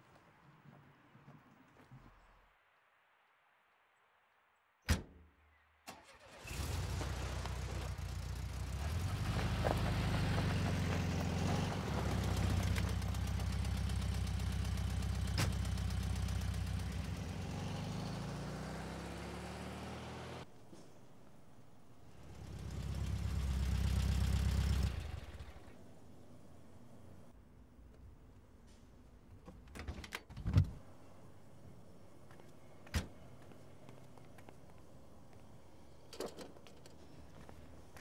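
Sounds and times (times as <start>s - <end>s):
thump: 4.9s - 5.2s
car engine starting and running: 5.9s - 20.5s, 21.5s - 27.4s.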